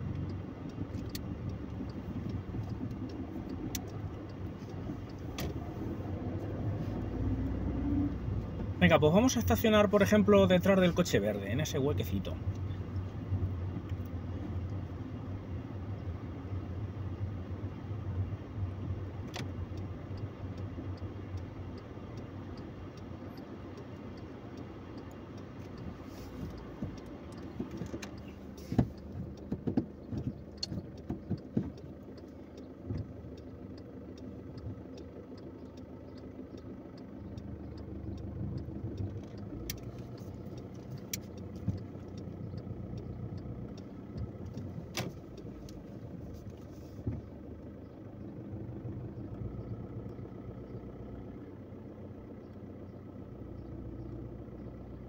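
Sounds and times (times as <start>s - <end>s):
car engine running low: 0.0s - 55.0s
faint evenly spaced clicks: 19.4s - 45.8s
sharp knocks and clicks: 25.0s - 36.3s, 37.7s - 45.8s.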